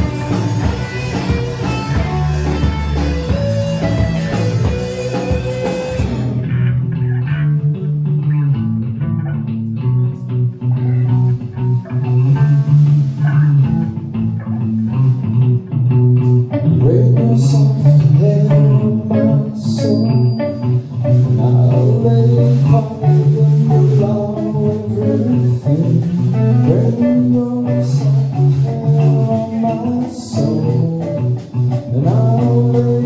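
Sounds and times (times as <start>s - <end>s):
drums and cymbals: 0.0s - 7.0s, 14.9s - 33.0s
bass guitar: 0.0s - 33.0s
electric guitars: 0.0s - 33.0s.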